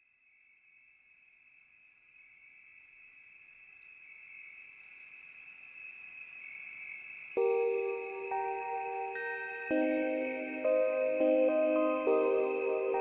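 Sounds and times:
crickets trilling: 0:03.2 - 0:13.0.

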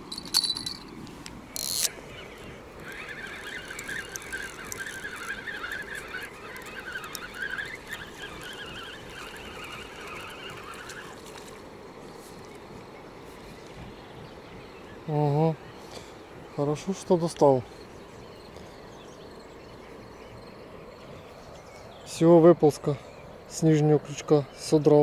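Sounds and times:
fishing reel gears whirring: 0:00.0 - 0:11.8
reel click: 0:00.1 - 0:11.6.

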